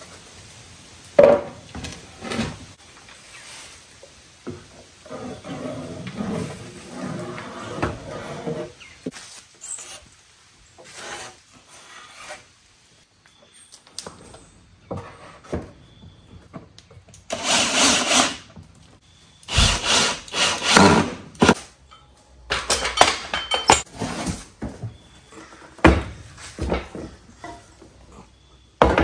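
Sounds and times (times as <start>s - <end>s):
drill driving screws into wood: 17.3s - 18.5s, 19.5s - 21.6s.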